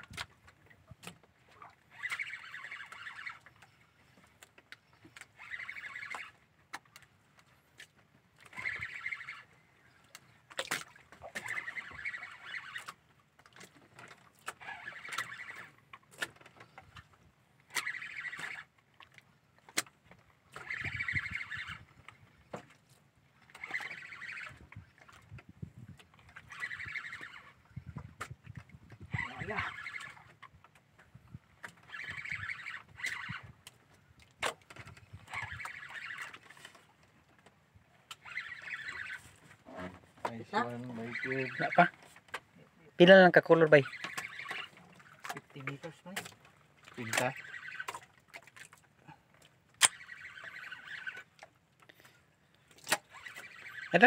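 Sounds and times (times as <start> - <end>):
fishing reel whirring: 1.9 - 3.8, 5.2 - 6.4, 8.4 - 10.0, 11.3 - 13.0, 13.7 - 18.7, 20.5 - 22.1, 23.4 - 25.3, 26.2 - 28.0, 29.0 - 30.4, 31.7 - 33.6, 34.8 - 36.8, 38.1 - 39.4, 43.8 - 45.2, 46.8 - 48.2, 49.7 - 51.6, 53.0 - 54.0.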